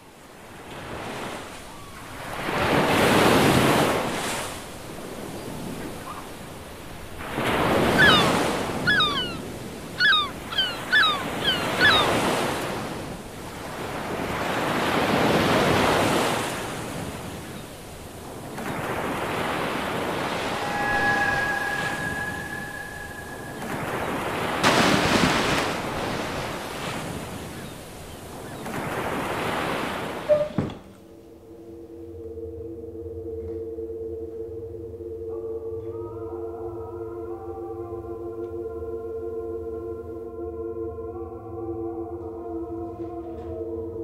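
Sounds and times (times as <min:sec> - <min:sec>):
sea surf breaking: 0:00.3 - 0:30.4
gull calls: 0:07.6 - 0:12.8, 0:20.2 - 0:26.4.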